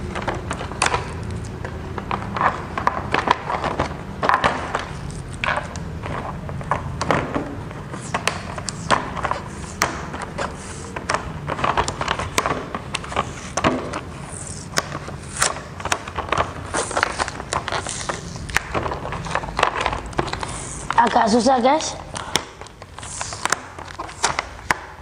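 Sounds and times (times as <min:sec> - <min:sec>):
plastic packaging crackling: 0:08.0 - 0:25.0.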